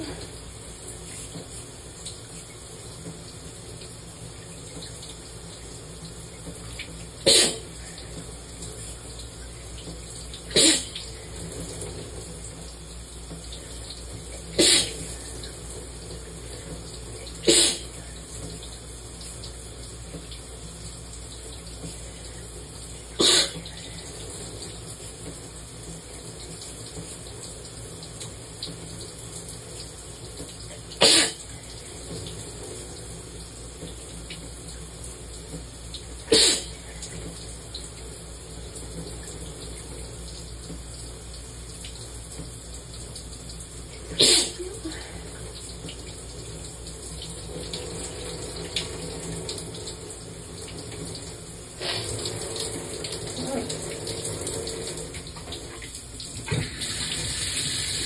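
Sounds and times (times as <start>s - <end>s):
shower running: 0.0s - 58.0s
person sneezing: 7.2s - 7.7s, 10.5s - 11.0s, 14.6s - 15.1s, 17.4s - 17.9s, 23.2s - 23.6s, 31.0s - 31.4s, 36.3s - 36.8s, 44.1s - 45.2s.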